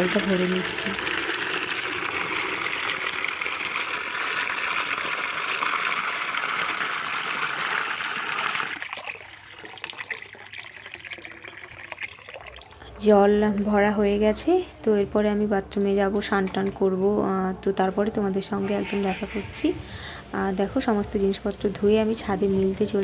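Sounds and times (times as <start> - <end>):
water gushing into plastic bucket: 0.0 - 12.8.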